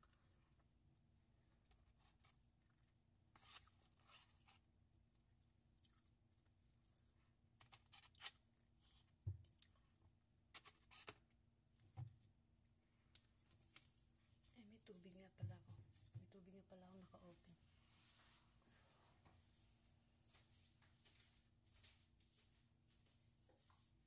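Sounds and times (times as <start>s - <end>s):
chewing: 5.6s - 8.4s, 9.4s - 10.1s
plastic fork scraping foam box: 10.5s - 11.2s.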